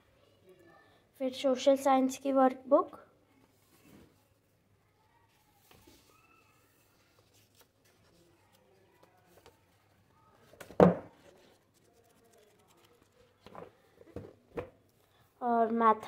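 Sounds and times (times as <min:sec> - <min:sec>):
paper rustling: 0:05.3 - 0:13.9
page flipping: 0:05.6 - 0:09.8, 0:10.4 - 0:13.8.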